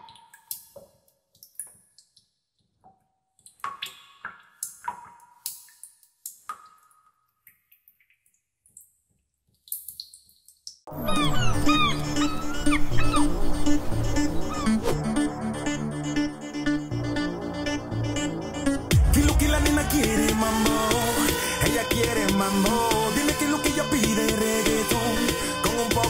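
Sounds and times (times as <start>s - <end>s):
music: 10.9s - 26.0s.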